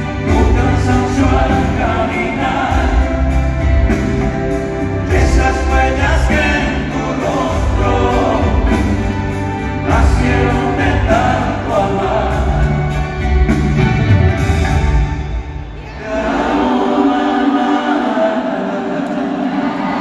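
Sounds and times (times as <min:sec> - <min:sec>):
male lead vocal: 0:00.0 - 0:13.5
low bass notes: 0:00.0 - 0:15.6
live band playing a ballad: 0:00.0 - 0:16.5.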